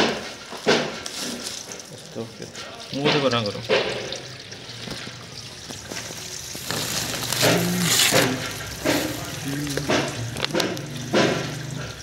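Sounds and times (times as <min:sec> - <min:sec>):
liquid pouring and splashing: 0:00.0 - 0:12.0.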